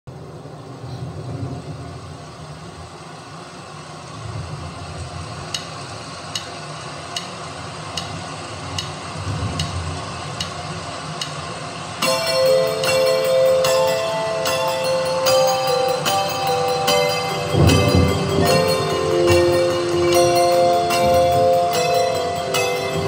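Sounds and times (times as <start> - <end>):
click track ticking: 6.3 - 9.0, 9.6 - 9.8, 10.4 - 10.6.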